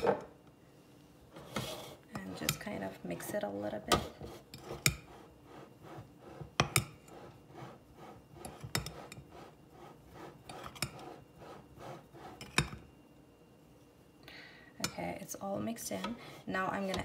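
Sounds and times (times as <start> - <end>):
spoon scraping through flour: 1.3 - 12.9.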